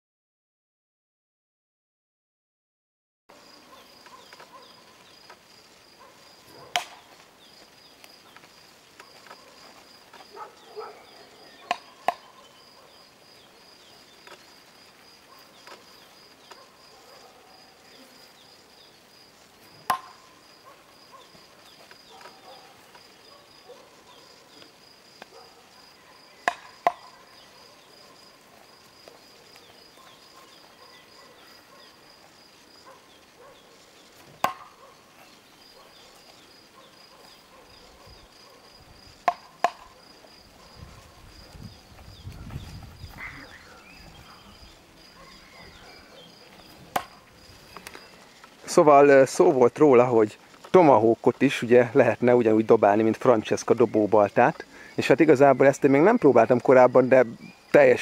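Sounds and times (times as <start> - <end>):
tomahawk thunking into wooden log: 6.7 - 7.0, 19.8 - 20.2, 26.4 - 27.0, 34.4 - 34.7, 39.2 - 39.9, 46.9 - 47.2.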